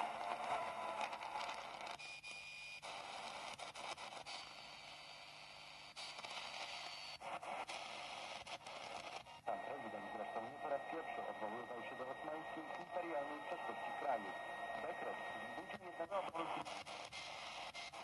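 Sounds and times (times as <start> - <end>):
radio static hiss and crackle: 2.8 - 18.0
radio whistle: 9.5 - 16.6.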